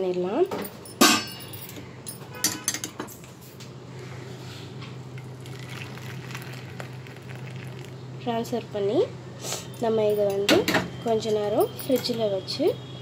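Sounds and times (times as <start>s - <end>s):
milk pouring into bowl: 5.2s - 8.0s.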